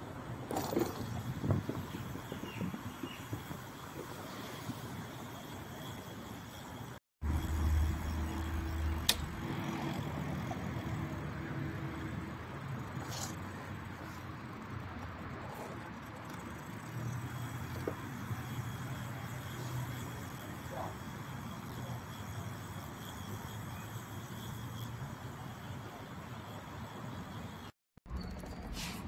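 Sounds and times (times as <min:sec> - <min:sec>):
steady street noise: 0:00.0 - 0:29.0
vehicle engine hum: 0:05.2 - 0:29.0
sharp click: 0:09.0 - 0:09.3.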